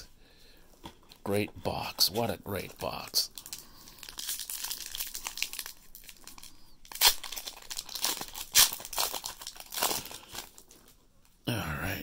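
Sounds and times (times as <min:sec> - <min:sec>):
foil wrapper crinkling and tearing: 0:03.0 - 0:11.0
foil wrapper ripping: 0:03.4 - 0:10.7.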